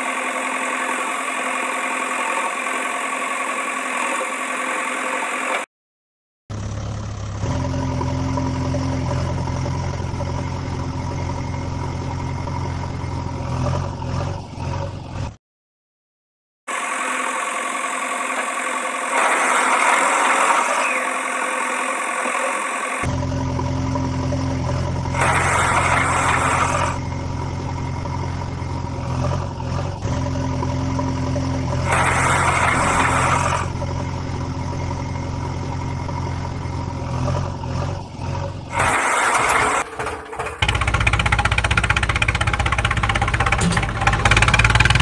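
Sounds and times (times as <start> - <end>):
construction machine engine: 0.0 - 5.7, 6.5 - 15.4, 16.7 - 45.0
mechanical whine: 7.4 - 14.5, 16.7 - 45.0.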